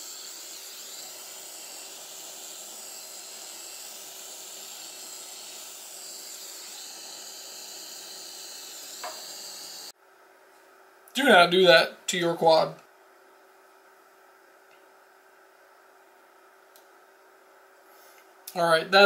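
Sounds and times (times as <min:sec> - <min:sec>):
torch hissing: 0:00.0 - 0:09.9.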